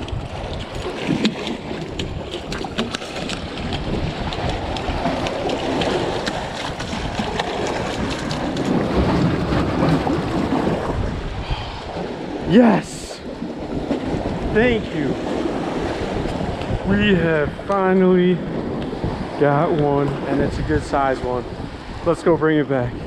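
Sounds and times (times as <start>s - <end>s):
water washing against a wall: 0.0s - 11.0s
wind buffeting the microphone: 0.0s - 23.0s.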